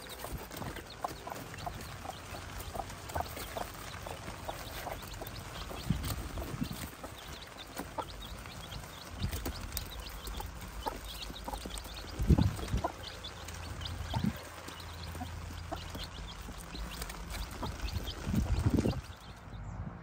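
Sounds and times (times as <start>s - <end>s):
chicks peeping: 0.0s - 20.0s.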